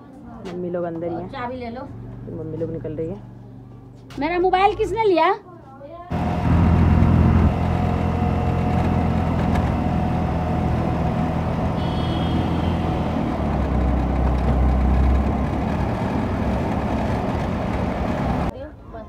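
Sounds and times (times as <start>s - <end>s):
road noise: 0.3s - 18.6s
auto-rickshaw engine running: 1.3s - 3.7s, 6.1s - 18.5s.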